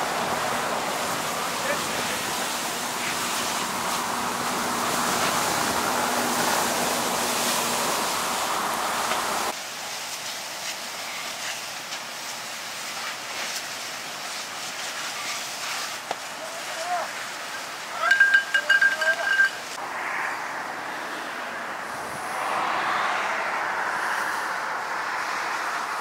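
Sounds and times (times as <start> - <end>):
water hose rushing hiss: 0.0 - 19.8
light crackles: 9.0 - 19.8.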